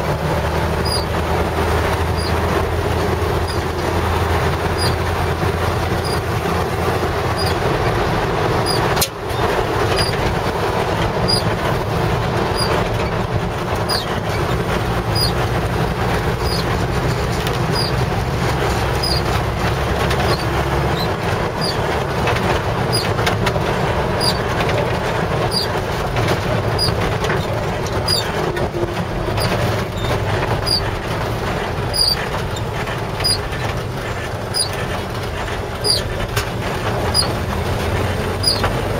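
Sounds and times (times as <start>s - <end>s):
engine and tyre noise on wet road: 0.0s - 38.9s.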